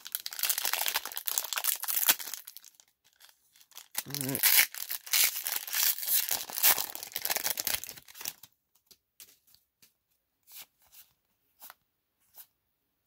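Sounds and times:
foil wrapper crinkling and tearing: 0.0 - 8.5.

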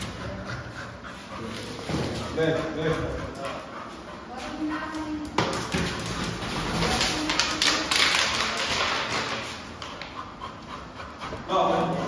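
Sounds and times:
dog claws tapping on hard floor: 4.9 - 10.1.

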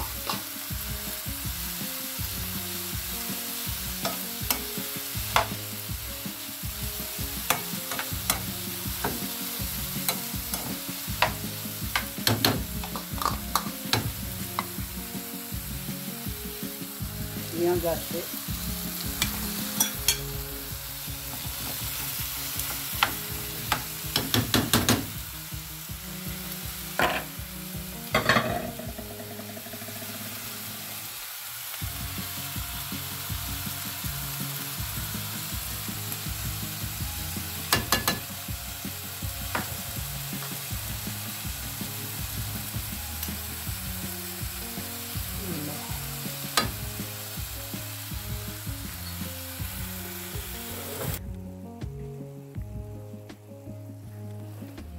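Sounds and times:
food sizzling in a frying pan: 0.0 - 54.8
utensils clicking against pan: 4.0 - 4.7, 7.5 - 9.3, 10.0 - 14.8, 19.2 - 20.3, 22.6 - 25.1, 37.7 - 38.4.

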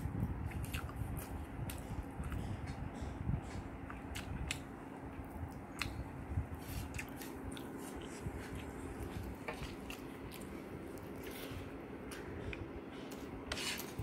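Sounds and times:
steady low hum: 0.0 - 14.0
chewing: 0.5 - 2.8, 6.6 - 13.2
fingers working rice on a plate: 6.6 - 14.0.

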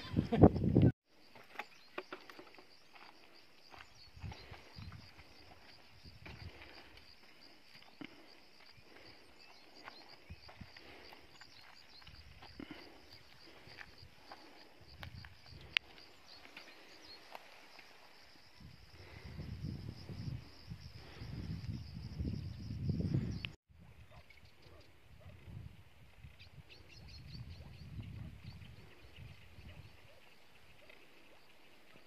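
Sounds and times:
insect chirring: 1.1 - 23.6
footsteps on dry earth: 1.2 - 18.4.

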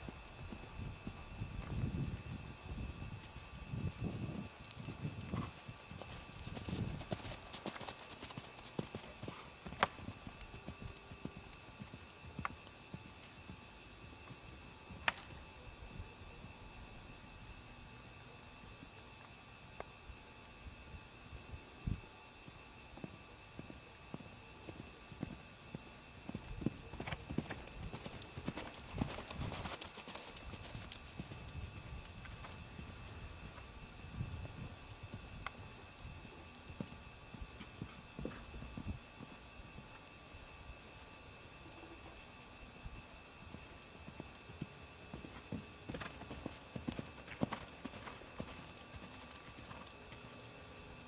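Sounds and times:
pony hoofbeats on sand: 3.4 - 13.6, 43.5 - 50.3.

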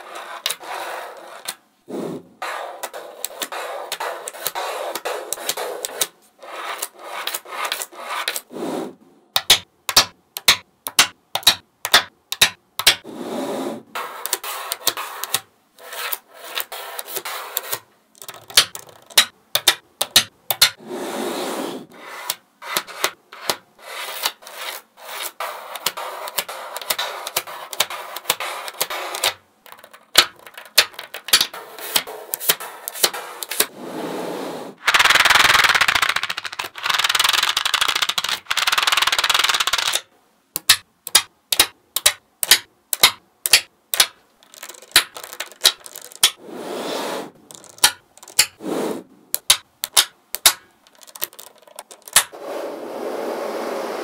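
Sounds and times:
magnetic balls scraping on tabletop: 0.0 - 9.0, 13.0 - 19.3, 20.7 - 29.9, 30.9 - 35.3, 44.4 - 49.6, 50.8 - 54.0
magnetic balls clicking together: 17.6 - 20.8, 25.8 - 33.6, 34.8 - 46.4, 47.4 - 48.6, 49.3 - 52.4.

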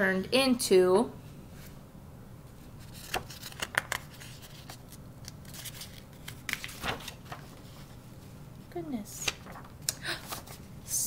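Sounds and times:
paper pages rustling: 2.6 - 8.2, 9.2 - 10.7.

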